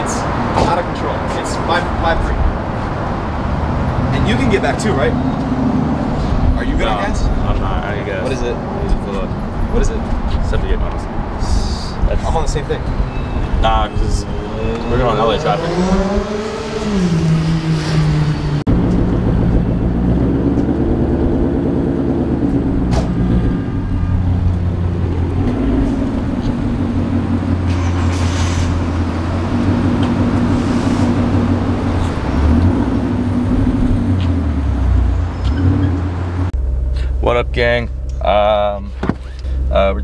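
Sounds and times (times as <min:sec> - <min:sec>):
car engine idling: 0:18.6 - 0:35.3, 0:36.2 - 0:40.0.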